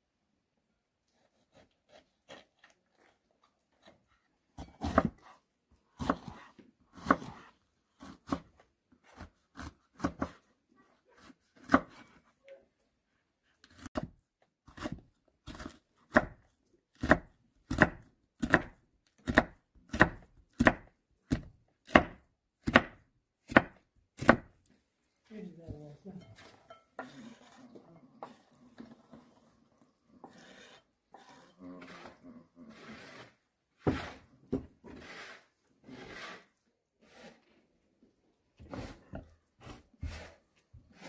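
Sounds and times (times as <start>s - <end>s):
knife chopping on wooden board: 4.6s - 5.4s, 6.0s - 10.5s, 11.2s - 12.0s, 13.7s - 16.4s, 17.0s - 24.6s, 33.8s - 35.3s, 38.6s - 40.4s.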